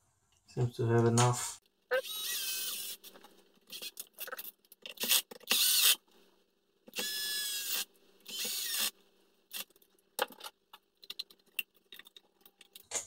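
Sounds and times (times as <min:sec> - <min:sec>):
electric screwdriver whining: 0:01.9 - 0:03.1, 0:05.0 - 0:06.0, 0:06.9 - 0:08.9.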